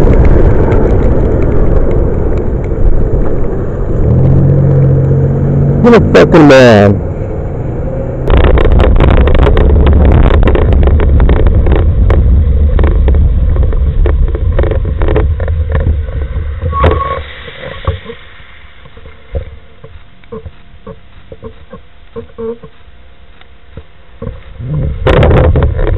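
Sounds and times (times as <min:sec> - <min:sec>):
loud low rumble with rattling: 0:00.0 - 0:25.9
scattered clicks: 0:19.0 - 0:25.9.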